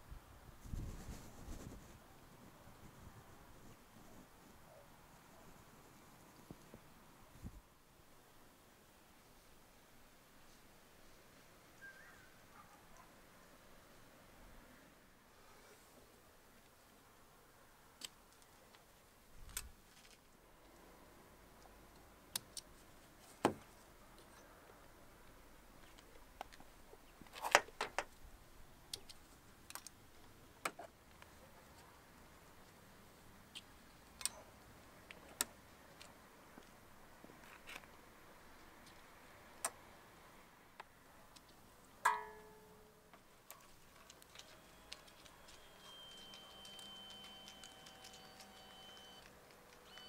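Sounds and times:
light ticks and clicks: 0:43.1 - 0:50.0.

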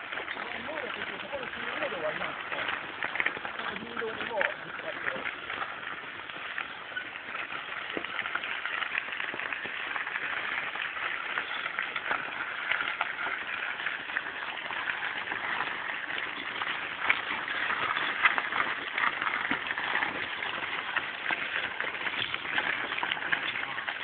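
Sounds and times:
bike rattling: 0:00.0 - 0:24.0
bike tyres crunching on gravel: 0:00.0 - 0:24.0.

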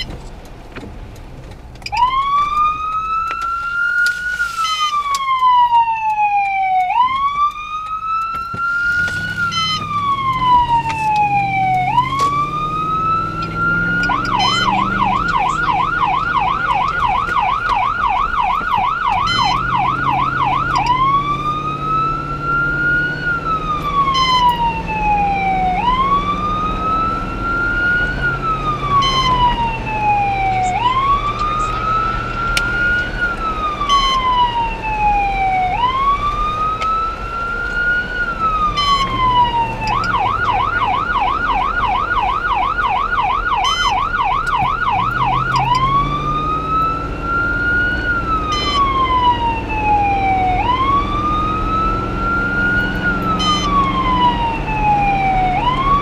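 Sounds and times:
emergency vehicle siren: 0:00.0 - 0:00.2, 0:01.8 - 0:56.0.

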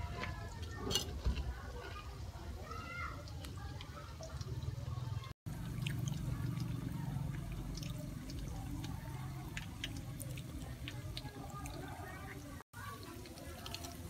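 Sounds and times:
oil sizzling in a frying pan: 0:00.0 - 0:14.0.

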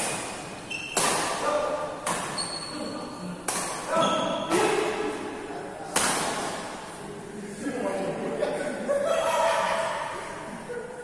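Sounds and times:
rackets hitting shuttlecock: 0:00.0 - 0:02.6, 0:03.4 - 0:05.2, 0:05.9 - 0:06.8
shoes squeaking on court: 0:00.6 - 0:01.1, 0:02.2 - 0:03.0.

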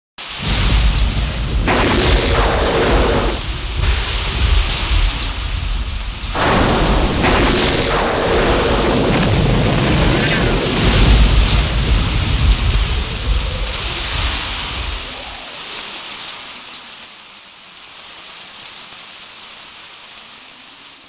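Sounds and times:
heavy rain: 0:00.2 - 0:21.0
deep rolling thunder: 0:00.3 - 0:15.8.

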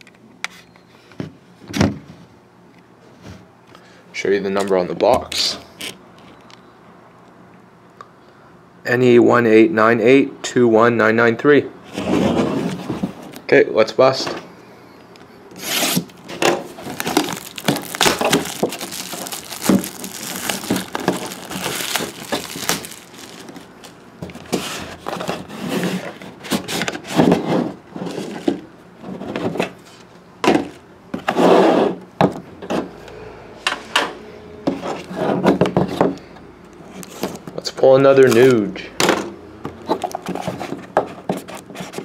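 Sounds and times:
cardboard scraping and tearing: 0:15.6 - 0:28.4.

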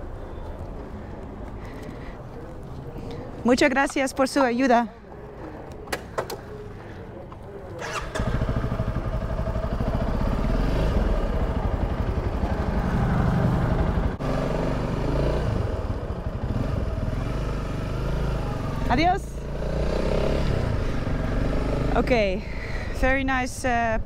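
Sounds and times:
motorcycle engine idling: 0:06.3 - 0:14.2, 0:15.5 - 0:17.2.

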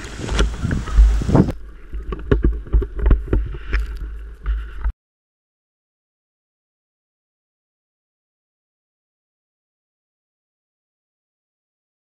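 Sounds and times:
blizzard wind buffeting microphone: 0:00.0 - 0:01.7.

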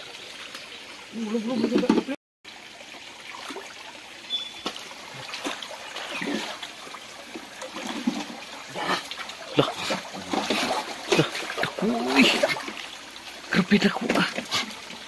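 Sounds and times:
stream water splashing and trickling: 0:00.0 - 0:15.0
water sloshing: 0:03.2 - 0:15.0.

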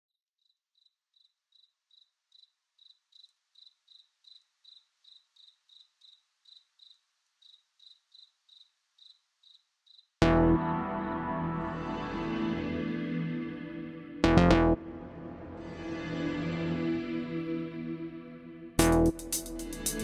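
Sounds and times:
cricket chirping: 0:00.4 - 0:10.2
loud synthesizer music: 0:10.2 - 0:20.0.

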